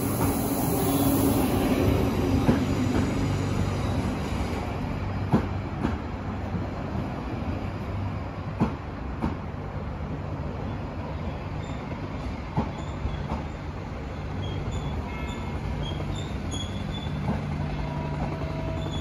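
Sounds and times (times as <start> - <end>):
train wheels rumbling on track: 0.0 - 19.0
wheel squeals: 14.4 - 17.3.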